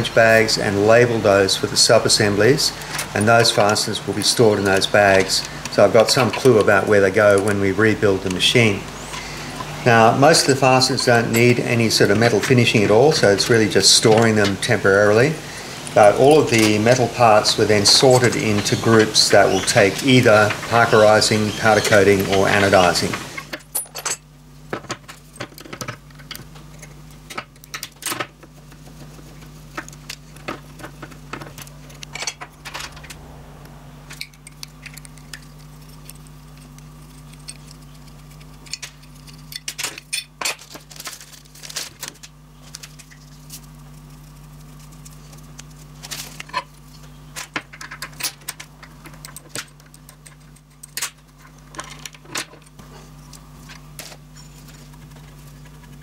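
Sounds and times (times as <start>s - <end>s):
steady low hum: 0.0s - 56.0s
metal parts and tools clinking: 2.7s - 7.6s, 9.0s - 14.6s, 16.0s - 28.4s, 29.8s - 33.2s, 34.1s - 42.3s, 47.4s - 52.9s.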